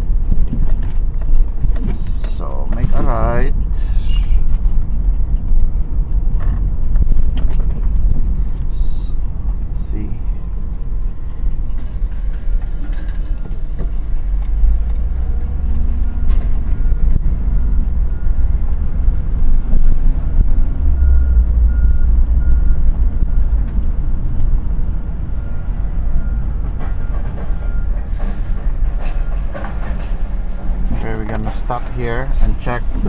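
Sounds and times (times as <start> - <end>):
car engine and road rumble: 0.0 - 33.0
trailer clicks and rattles: 0.0 - 33.0
faint backup beeper: 15.3 - 19.0, 20.6 - 23.8, 24.8 - 28.5.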